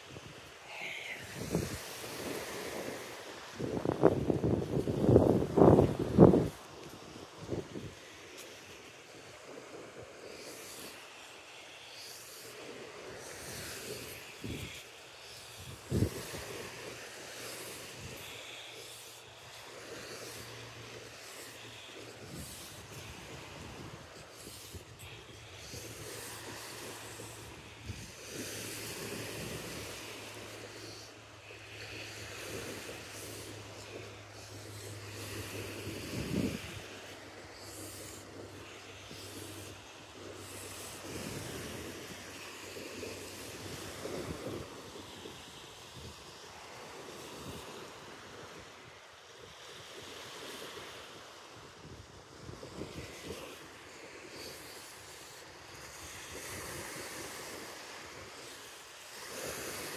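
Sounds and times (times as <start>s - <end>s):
steady outdoor hiss: 0.0s - 59.9s
surf washing on shore: 0.0s - 59.9s
wind buffeting microphone: 1.2s - 8.1s, 15.6s - 16.9s, 32.2s - 42.3s.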